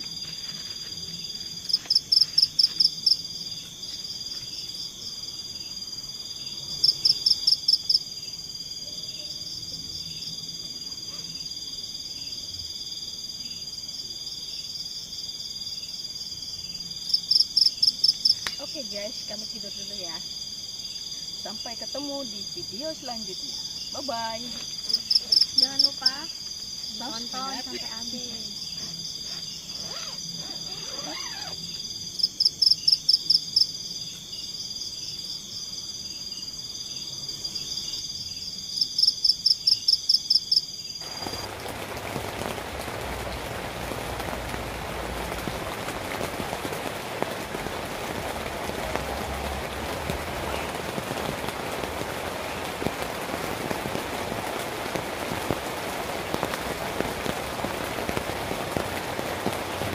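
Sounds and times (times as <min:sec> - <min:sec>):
high-pitched insect trilling: 0:00.0 - 0:10.3, 0:16.7 - 0:34.6
heavy rain hissing: 0:16.8 - 0:32.6, 0:41.0 - 0:59.9.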